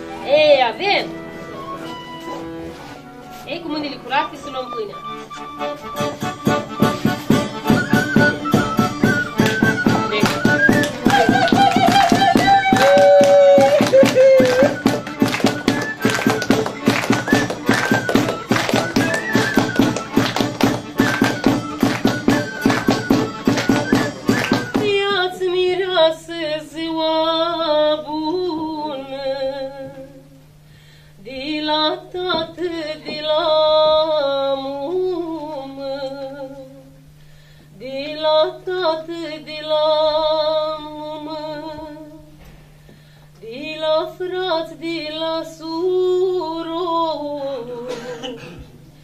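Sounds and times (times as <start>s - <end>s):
fast rhythmic instrumental music: 4.5s - 24.8s
person singing folk song: 7.0s - 30.3s.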